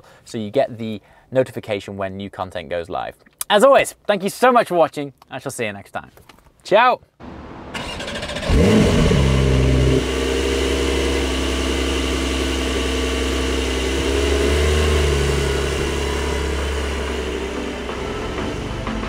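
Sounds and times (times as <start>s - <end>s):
car engine idling: 7.2s - 19.0s
car pulling away: 7.2s - 19.0s.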